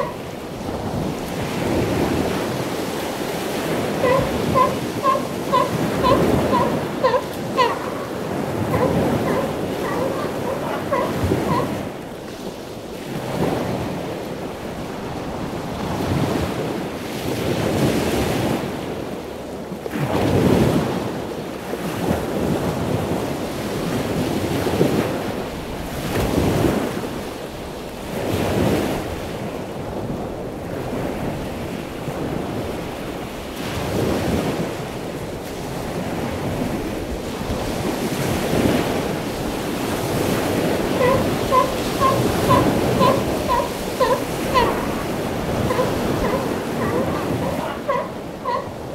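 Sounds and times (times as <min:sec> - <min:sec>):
elephant seal call: 0:00.0 - 0:00.3, 0:03.5 - 0:12.0, 0:40.0 - 0:48.9
ocean surf breaking: 0:00.0 - 0:18.8, 0:30.8 - 0:48.9
wind buffeting microphone: 0:00.0 - 0:48.9.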